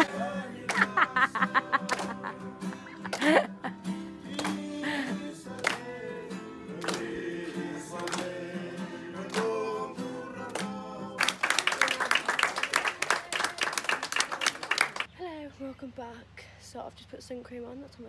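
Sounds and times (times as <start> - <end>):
loud applause: 0.0 - 2.3, 11.2 - 15.1
group singing: 0.0 - 11.2
acoustic guitar: 0.0 - 11.4
people clapping along: 0.0 - 15.1.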